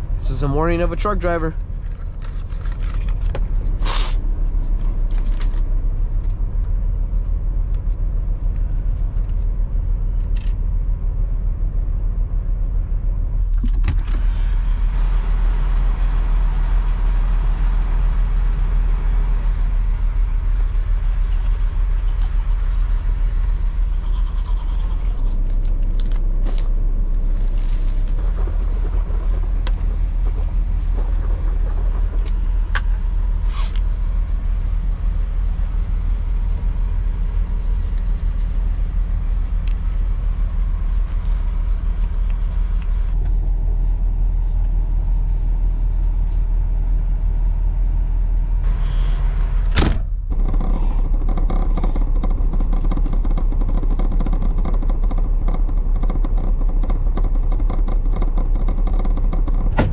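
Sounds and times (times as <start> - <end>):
diesel engine idling: 0.0 - 59.9.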